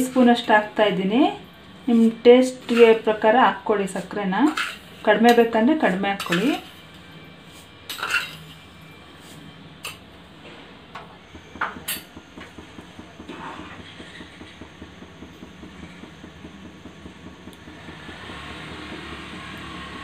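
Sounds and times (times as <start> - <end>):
steel spoon clinking on steel: 6.2 - 6.6
milk bubbling in a pan: 11.1 - 20.0.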